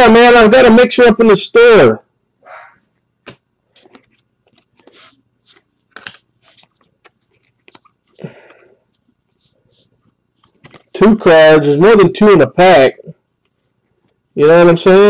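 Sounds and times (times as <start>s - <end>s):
trading cards clicking and scraping: 3.3s - 11.0s
cards rustling: 3.3s - 11.2s.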